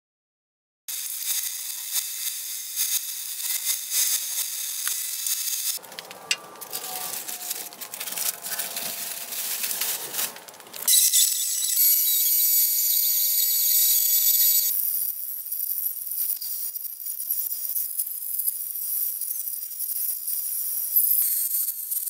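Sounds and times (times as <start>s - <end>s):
paint spray gun hissing: 0.9s - 5.8s
high whine: 5.7s - 14.7s.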